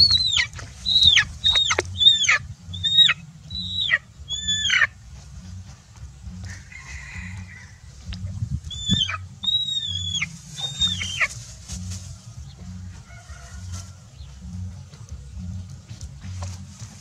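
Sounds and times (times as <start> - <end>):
chicken shrill distress calls: 0.0 - 5.0, 8.7 - 11.4.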